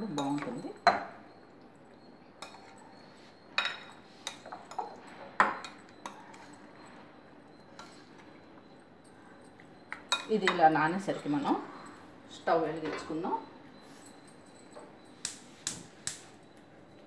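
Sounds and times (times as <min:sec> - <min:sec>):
spoon clinking against glass bowl: 0:00.0 - 0:01.3, 0:01.9 - 0:06.9.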